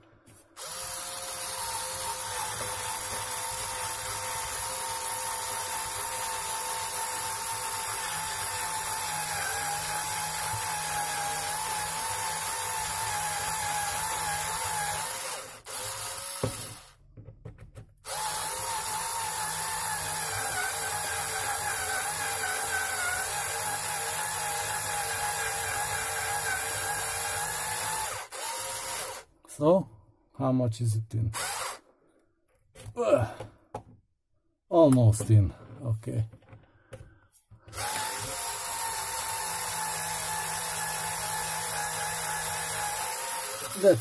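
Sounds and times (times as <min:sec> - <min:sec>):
electric drill whining: 0:00.5 - 0:16.9, 0:18.0 - 0:29.3, 0:31.4 - 0:31.9, 0:37.7 - 0:44.0.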